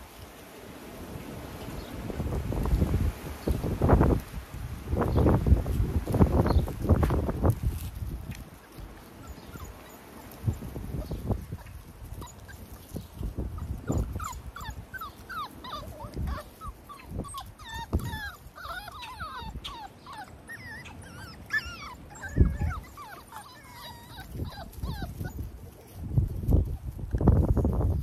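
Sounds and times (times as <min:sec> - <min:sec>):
puppies whining and yelping: 0:08.5 - 0:26.0.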